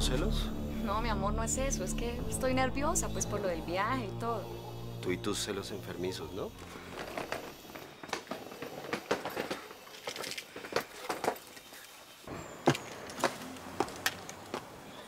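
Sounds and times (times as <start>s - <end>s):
footsteps: 6.6s - 14.8s.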